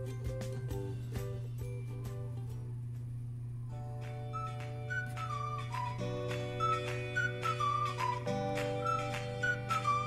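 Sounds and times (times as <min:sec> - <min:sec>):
whistle-like melody with beat: 0:00.0 - 0:02.3, 0:03.9 - 0:10.0.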